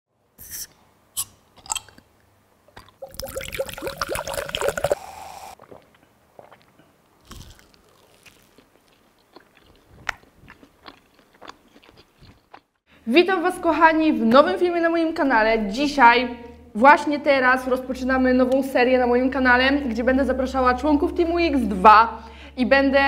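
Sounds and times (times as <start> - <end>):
glass bottles opening clicks: 1.6 - 2.0
drink pouring into glasses: 2.8 - 5.9
crunching and chewing food: 5.6 - 12.8.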